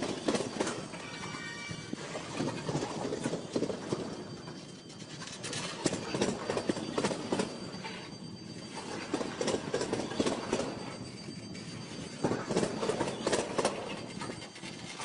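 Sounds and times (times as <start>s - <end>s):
train wheels clacking over crossing: 0.0s - 15.0s.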